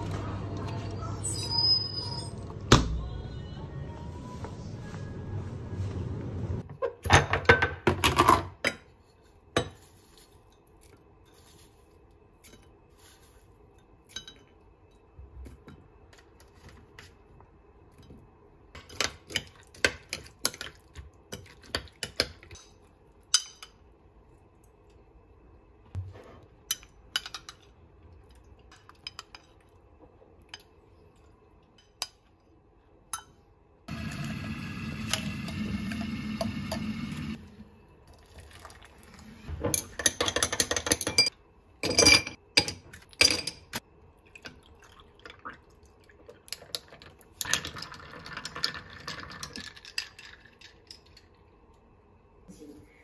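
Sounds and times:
liquid pouring into a glass: 0:38.1 - 0:39.2, 0:44.2 - 0:50.9
glassware clinking: 0:39.8 - 0:43.8.

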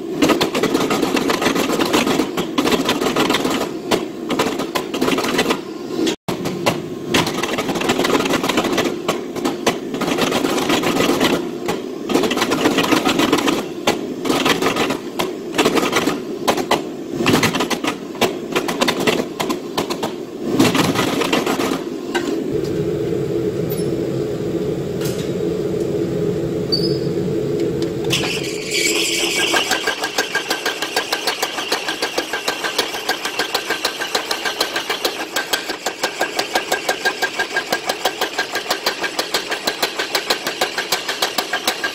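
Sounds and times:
machine humming: 0:18.6 - 0:31.6
steady mechanical knocking: 0:29.3 - 0:41.9.

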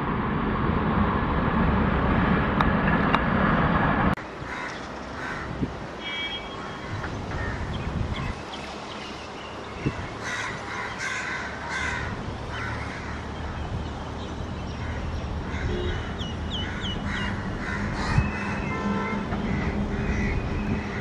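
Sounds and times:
crows cawing: 0:04.4 - 0:05.6, 0:06.6 - 0:07.7, 0:10.2 - 0:13.3, 0:14.8 - 0:21.0.

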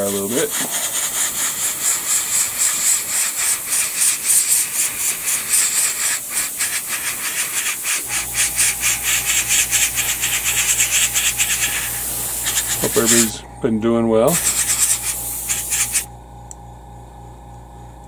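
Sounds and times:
airbrush air hissing in pulses: 0:00.0 - 0:13.4, 0:14.2 - 0:16.1
low steady hum: 0:08.1 - 0:18.0.

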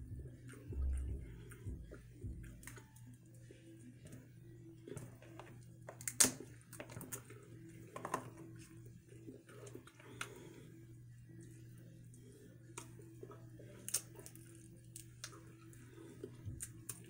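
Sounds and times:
crab shells cracking: 0:05.4 - 0:07.4, 0:13.8 - 0:15.8.

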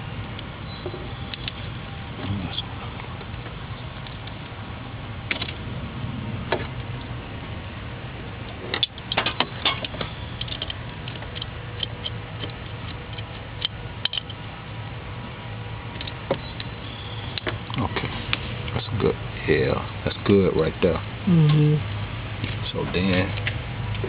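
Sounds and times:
steady low hum: 0:00.0 - 0:24.0
hand tools clicking and rattling: 0:08.7 - 0:14.4.

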